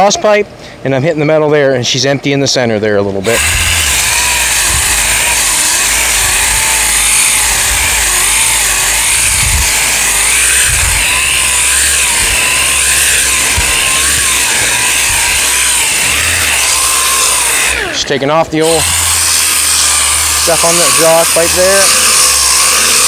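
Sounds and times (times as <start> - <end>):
orbital sander grinding: 3.2 - 23.0.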